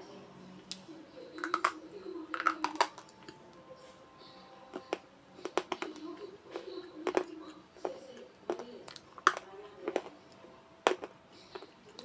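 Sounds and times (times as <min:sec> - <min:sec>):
pencils crunched between teeth: 0:01.4 - 0:03.4, 0:07.0 - 0:10.2.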